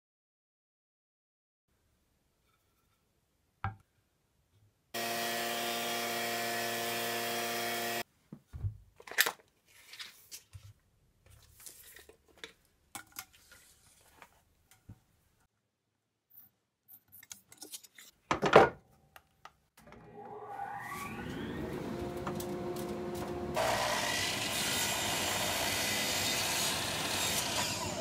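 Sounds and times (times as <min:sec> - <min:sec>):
thickness planer running: 0:05.0 - 0:08.0, 0:19.8 - 0:28.0.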